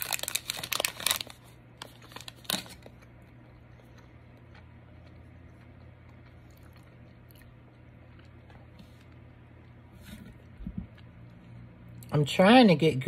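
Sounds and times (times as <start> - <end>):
plastic pouch crinkling: 0.0 - 3.1
low steady hum: 0.0 - 13.0.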